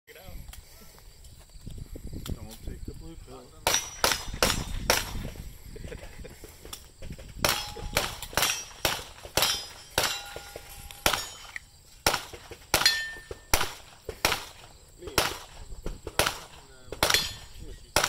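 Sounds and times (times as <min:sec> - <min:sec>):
gunshots: 0:03.6 - 0:05.4, 0:07.4 - 0:18.0
metallic ring: 0:09.4 - 0:11.6, 0:12.8 - 0:13.4.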